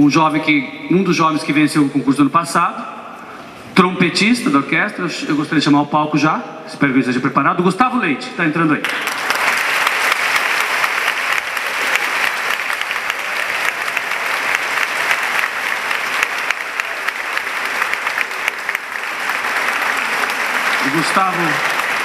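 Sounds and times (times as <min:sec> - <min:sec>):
audience applauding: 0:08.8 - 0:22.0.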